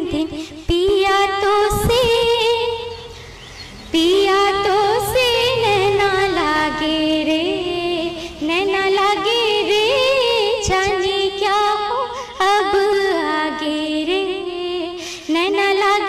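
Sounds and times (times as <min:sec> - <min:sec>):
woman singing unaccompanied: 0:00.0 - 0:16.0.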